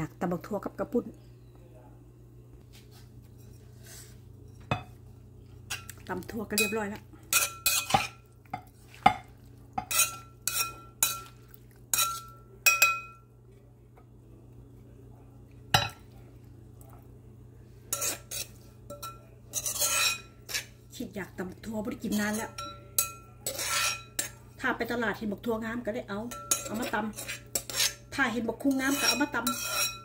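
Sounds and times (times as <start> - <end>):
metal spoon clinking in metal bowl: 6.5 - 9.2, 9.8 - 13.3, 17.9 - 20.7, 22.0 - 24.4, 26.3 - 28.1, 28.7 - 30.0.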